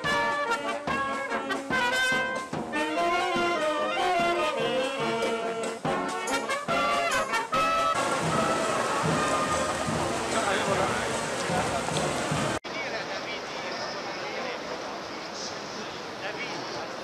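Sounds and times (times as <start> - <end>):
brass band playing: 0.0 - 12.6.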